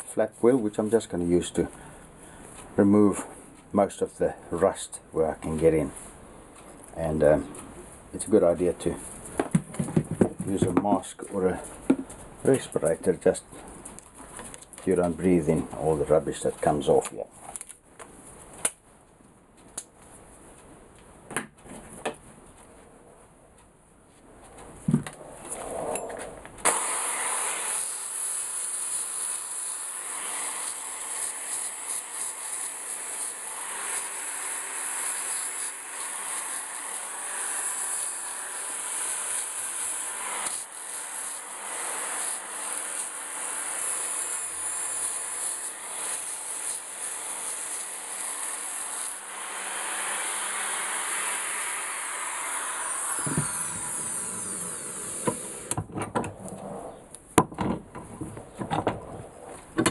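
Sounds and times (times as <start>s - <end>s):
drill motor whine: 26.7s - 55.8s.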